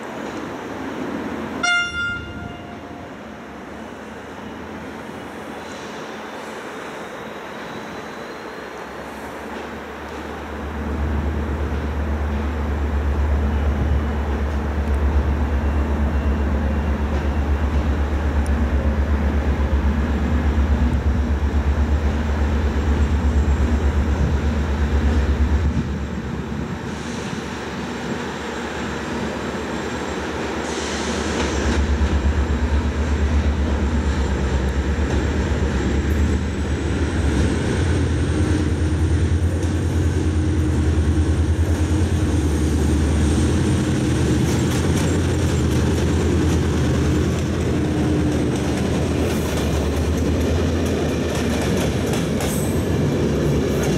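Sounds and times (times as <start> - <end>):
diesel locomotive engine drone: 0.0 - 53.9
brief hiss: 30.5 - 31.8.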